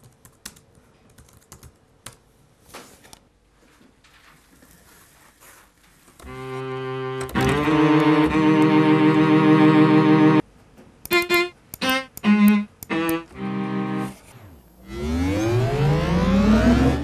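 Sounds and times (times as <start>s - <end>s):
synthesizer tones: 11.1s - 17.0s.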